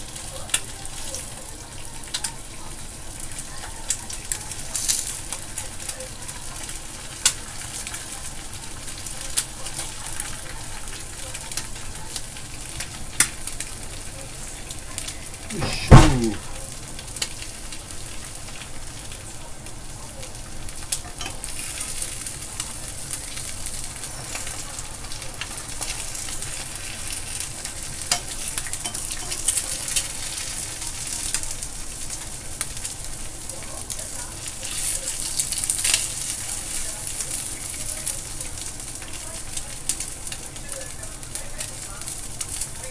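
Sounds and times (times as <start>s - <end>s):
eggs sizzling in a frying pan: 0.0s - 42.9s
sharp knock: 15.6s - 16.4s.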